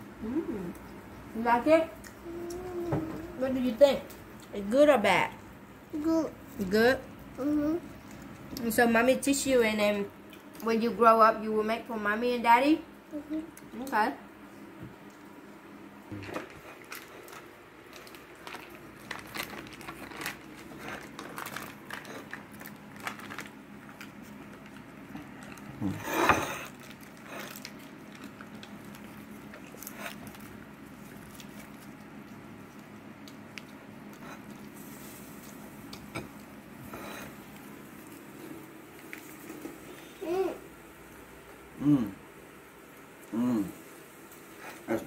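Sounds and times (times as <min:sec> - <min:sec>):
rice paper crackling and rustling: 0:16.7 - 0:25.7.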